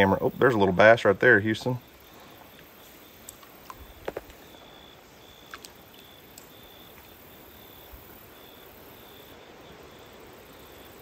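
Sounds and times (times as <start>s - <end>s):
steady low hiss: 0.0s - 11.0s
faint clicks: 2.5s - 4.4s, 5.4s - 7.2s.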